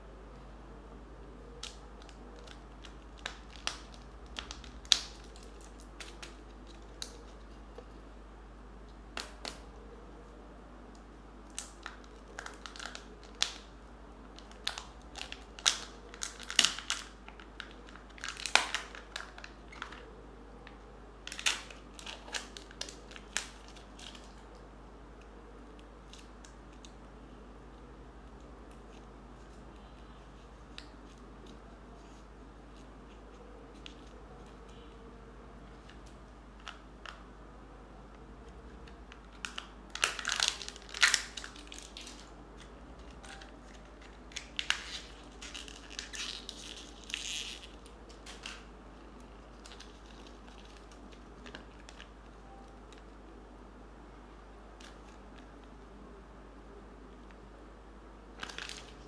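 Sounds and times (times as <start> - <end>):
wrapper crinkling and tearing: 1.6 - 7.6, 11.5 - 13.7, 14.3 - 20.1, 21.2 - 24.6, 39.1 - 48.7, 49.5 - 52.2, 58.4 - 59.0.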